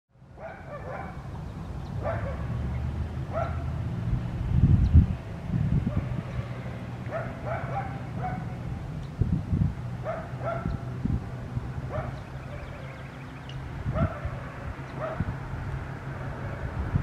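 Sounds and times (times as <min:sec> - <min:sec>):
dog barking and yipping: 0:00.4 - 0:01.3, 0:02.0 - 0:02.6, 0:03.3 - 0:03.8, 0:07.1 - 0:08.6, 0:10.0 - 0:10.9, 0:11.9 - 0:13.1, 0:13.9 - 0:15.3.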